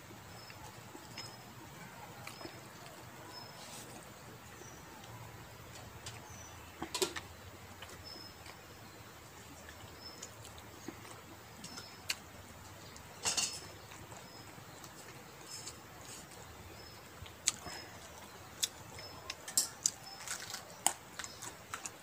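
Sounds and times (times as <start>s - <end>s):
bird chirping: 0.0s - 21.9s.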